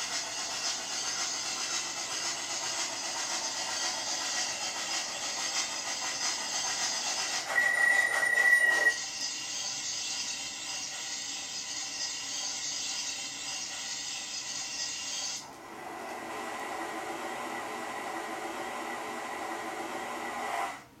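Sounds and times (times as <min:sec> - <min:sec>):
steam hiss: 0:00.0 - 0:15.4
loud high whistle: 0:07.4 - 0:09.0.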